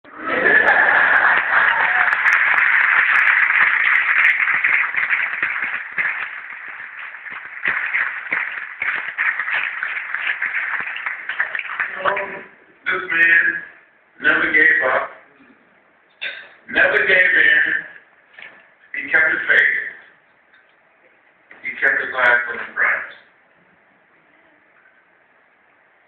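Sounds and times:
audience applause: 0:00.1 - 0:12.4.

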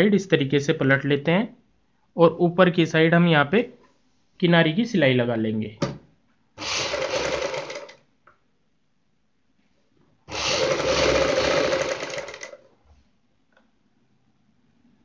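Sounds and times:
sewing machine stitching: 0:06.6 - 0:08.0, 0:10.3 - 0:12.7.

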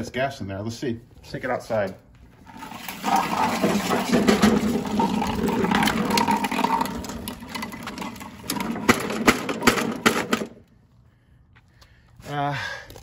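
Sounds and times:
lawnmower rattling over concrete: 0:02.4 - 0:10.7.

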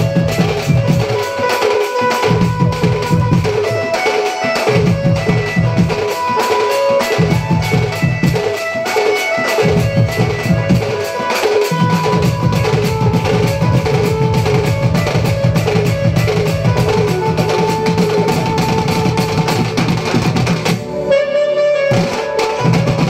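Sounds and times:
folk band playing: 0:00.0 - 0:23.0
reed-pipe melody: 0:00.0 - 0:23.0
barrel drum strokes: 0:21.9 - 0:23.0.

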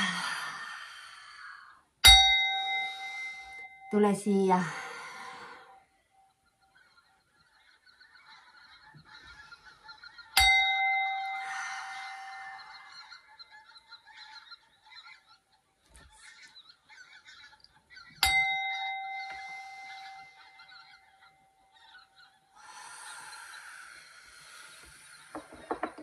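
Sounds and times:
small metal chime ringing: 0:02.0 - 0:04.6, 0:10.4 - 0:12.6, 0:18.2 - 0:20.8
soft knock: 0:25.4 - 0:26.0.

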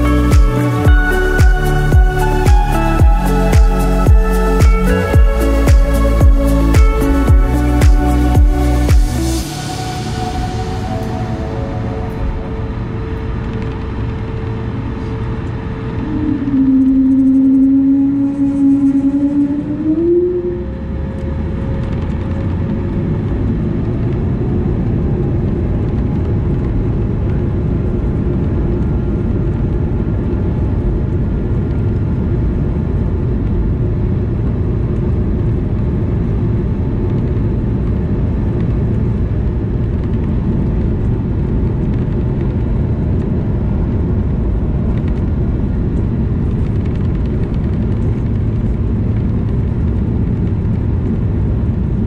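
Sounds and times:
aircraft takeoff rumble: 0:00.0 - 0:52.0
jet engines whining: 0:09.2 - 0:23.6.

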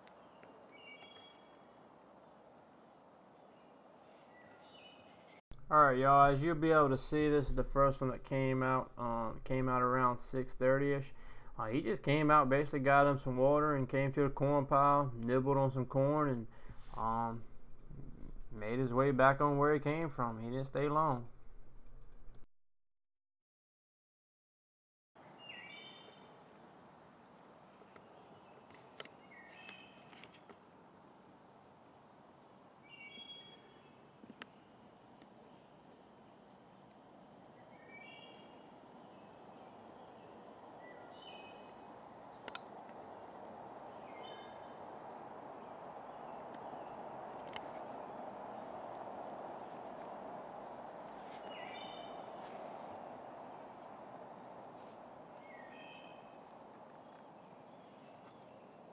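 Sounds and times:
insects droning: 0:00.0 - 0:21.2, 0:25.2 - 0:58.9
soft hiss: 0:06.0 - 0:12.3, 0:16.6 - 0:18.8.

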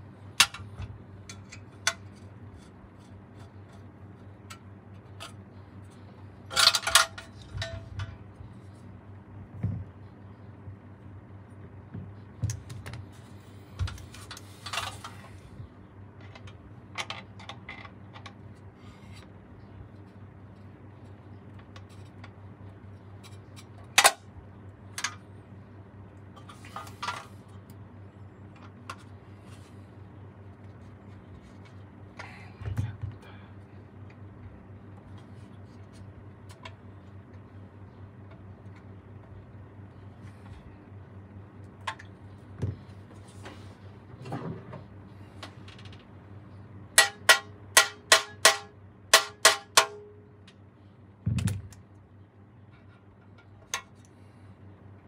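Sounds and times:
steady low hum: 0:00.0 - 0:55.0
tools clicking and knocking on metal: 0:06.5 - 0:08.2, 0:47.0 - 0:50.6.

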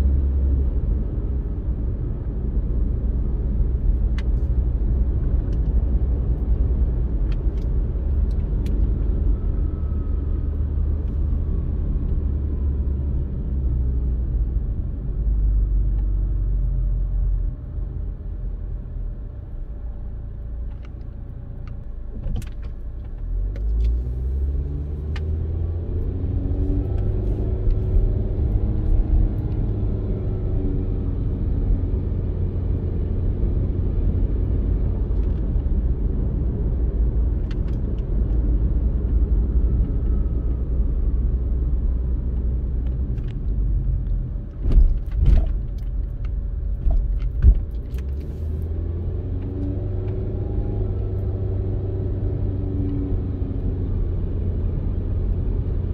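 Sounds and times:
car engine accelerating: 0:21.6 - 0:55.9.

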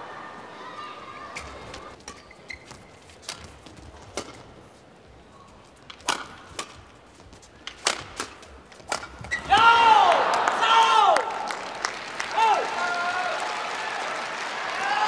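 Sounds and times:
low hush of indoor arena: 0:00.0 - 0:15.0
rackets striking shuttlecock: 0:05.9 - 0:06.9, 0:07.6 - 0:09.5.

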